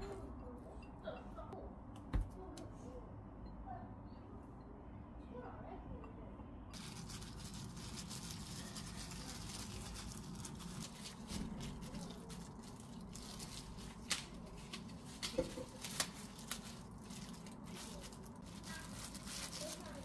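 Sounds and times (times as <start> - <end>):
plastic glove and lettuce rustling: 6.7 - 20.0.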